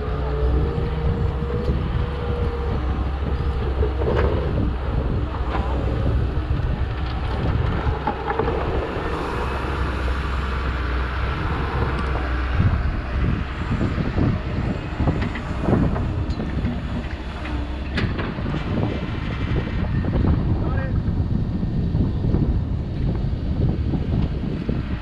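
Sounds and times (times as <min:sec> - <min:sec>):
diesel engine humming: 0:00.0 - 0:25.0
wind buffeting microphone: 0:00.0 - 0:25.0.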